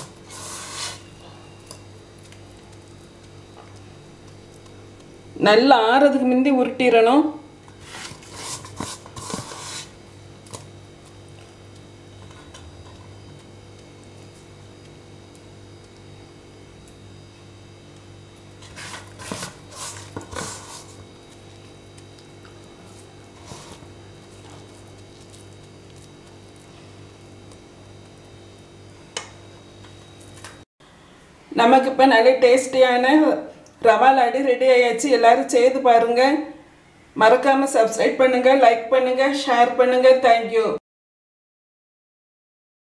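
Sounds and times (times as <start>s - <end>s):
hands scraping mixture in steel vessel: 0.0s - 1.1s, 7.8s - 10.0s, 18.6s - 21.0s
low electrical hum: 0.0s - 40.8s.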